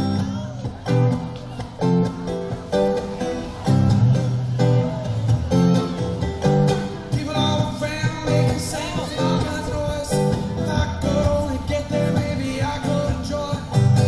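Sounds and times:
man singing: 0.0 - 1.2, 6.8 - 14.0
acoustic guitar strumming: 0.0 - 14.0.

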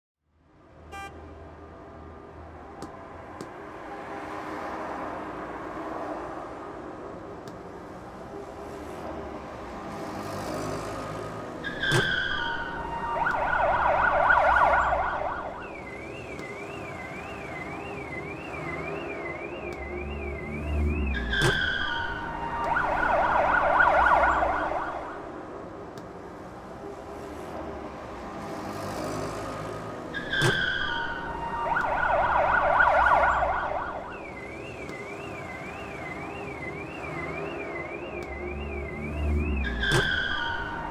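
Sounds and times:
city traffic rumble: 0.2 - 40.9
car horn blast: 0.9 - 1.2
wail siren rising and falling: 10.9 - 25.7, 29.4 - 40.9
yelp siren warbling: 11.6 - 25.3, 30.1 - 40.9.

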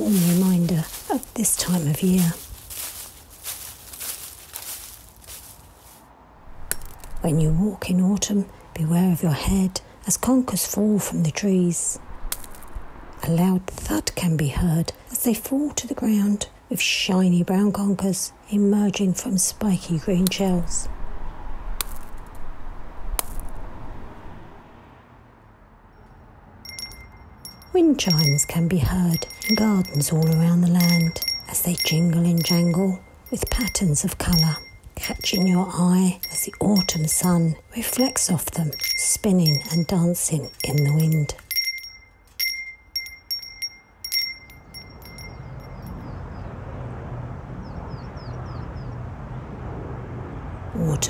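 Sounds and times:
metal wind chime jingling: 0.0 - 5.5, 26.6 - 46.0.

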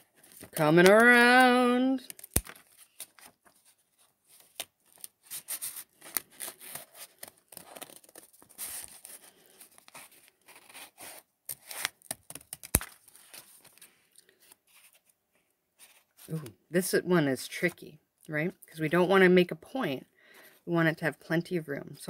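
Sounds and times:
scissors snipping paper: 9.9 - 13.0.

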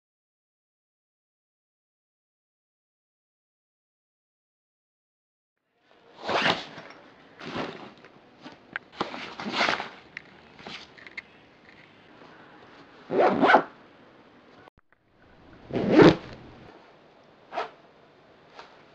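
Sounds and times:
backpack zippers pulled: 13.1 - 13.7, 15.5 - 16.6
bag fabric rustling: 15.5 - 16.7.

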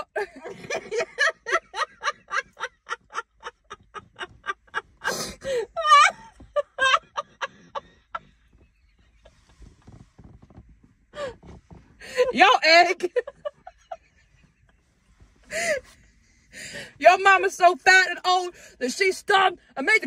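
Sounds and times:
women laughing: 0.0 - 8.8, 12.2 - 14.9, 15.5 - 16.7.

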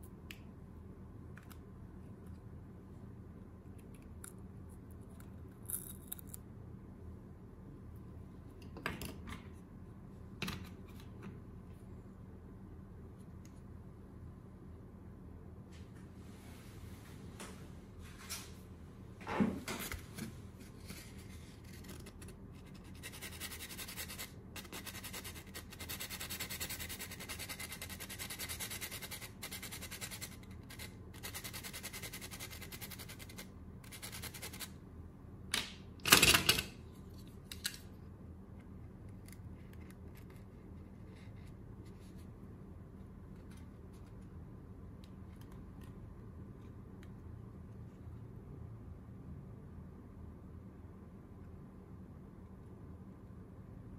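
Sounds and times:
pencil lead scraping on sandpaper: 22.7 - 34.7.

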